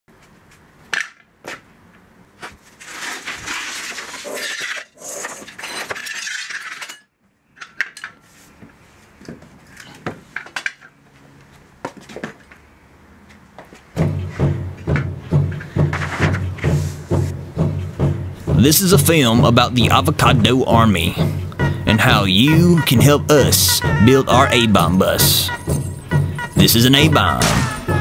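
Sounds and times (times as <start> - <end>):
dense rustling and scraping: 2.4 - 7.0, 14.1 - 18.5.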